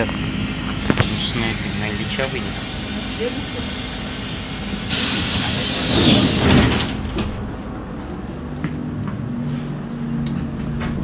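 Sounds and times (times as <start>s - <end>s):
trolleybus steady low hum: 0.0s - 11.0s
pneumatic doors releasing air: 3.7s - 7.0s.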